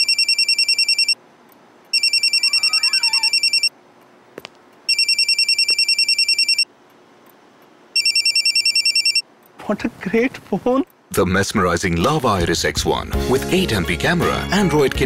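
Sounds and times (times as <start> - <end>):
phone ringing with electronic trill: 0.0 - 1.2, 1.9 - 3.7, 4.9 - 6.7, 8.0 - 9.2.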